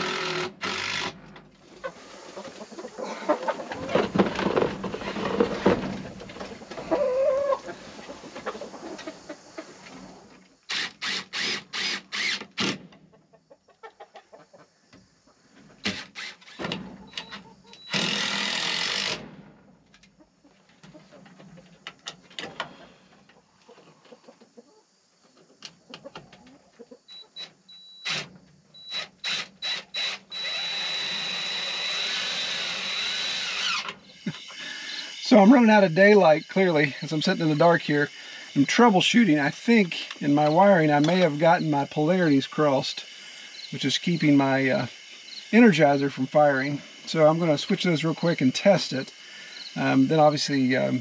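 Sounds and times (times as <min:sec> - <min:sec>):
cordless drill driving screws: 0:00.0 - 0:01.3, 0:10.7 - 0:12.8, 0:15.8 - 0:19.2, 0:28.0 - 0:35.2
chickens clucking: 0:01.6 - 0:10.6, 0:12.9 - 0:15.8, 0:20.1 - 0:27.6.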